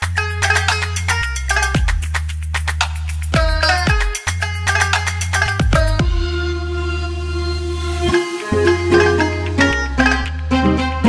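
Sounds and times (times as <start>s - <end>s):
background music with deep bass: 0.0s - 11.0s
falling pitch sweeps: 6.2s - 11.0s.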